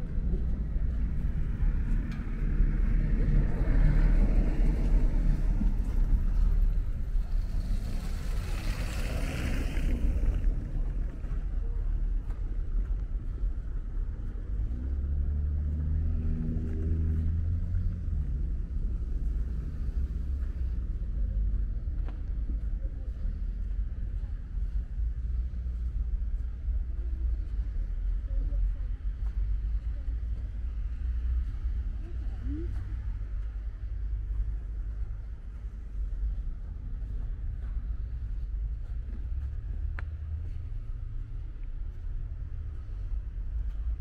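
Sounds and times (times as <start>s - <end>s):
engine hum: 0.0s - 44.0s
low rumble of traffic: 0.0s - 44.0s
vehicle passing with hiss: 7.3s - 10.5s.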